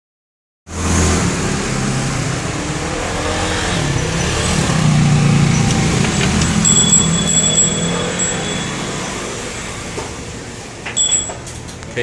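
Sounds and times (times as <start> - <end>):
street noise: 0.7 - 12.0
vehicle engine running: 1.5 - 10.8.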